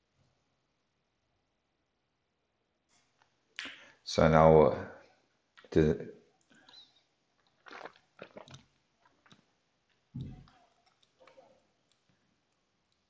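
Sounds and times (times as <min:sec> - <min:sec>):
man sipping and swallowing: 0:06.5 - 0:09.5.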